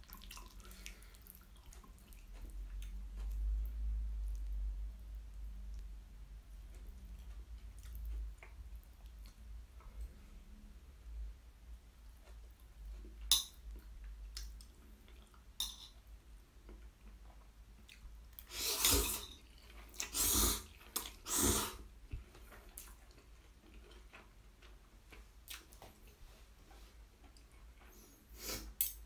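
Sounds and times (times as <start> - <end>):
noodles slurped: 18.4 - 21.9.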